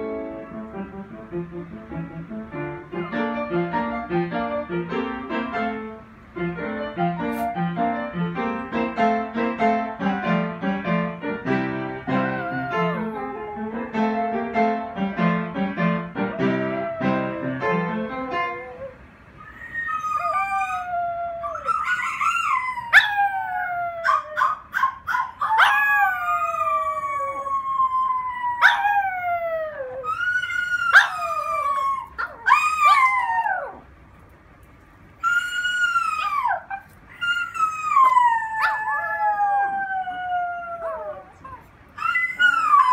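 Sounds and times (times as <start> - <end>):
piano music: 0.0 - 19.2
small dog howling: 12.1 - 13.9, 16.2 - 17.6, 18.5 - 33.8, 35.2 - 42.9
dog yipping: 18.4 - 23.4, 24.0 - 26.6, 28.6 - 29.0, 30.0 - 33.8, 35.2 - 39.3, 40.9 - 42.9.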